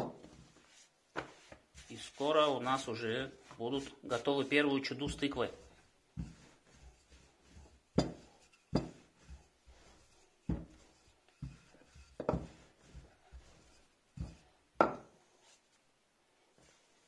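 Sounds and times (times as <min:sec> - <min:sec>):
rolling pin rolling dough: 0:00.0 - 0:17.0
rolling pin knocking on counter: 0:08.0 - 0:09.0, 0:10.5 - 0:10.8, 0:12.2 - 0:12.6, 0:14.2 - 0:15.1.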